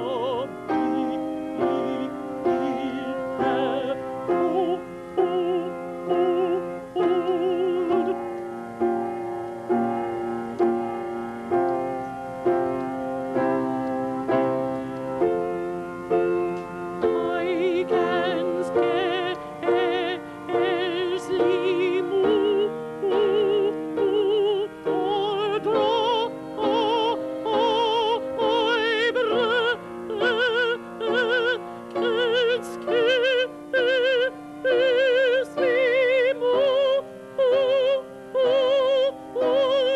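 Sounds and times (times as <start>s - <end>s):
man singing opera: 0.0s - 8.2s, 17.0s - 39.9s
instrumental accompaniment: 0.0s - 39.9s.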